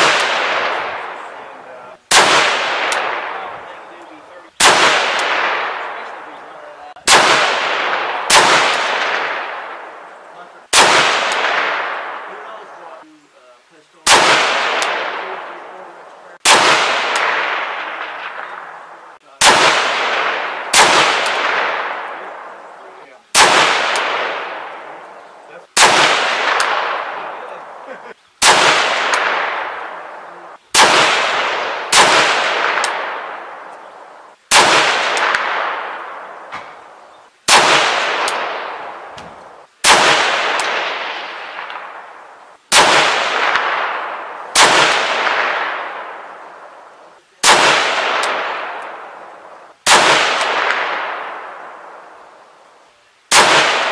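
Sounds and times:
rifle shots echoing: 0.0s - 53.9s.

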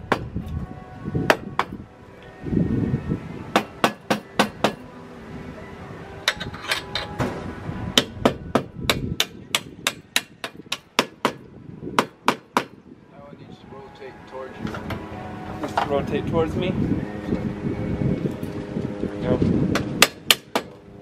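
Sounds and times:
metallic knocks on steel tubes: 8.0s - 11.4s.

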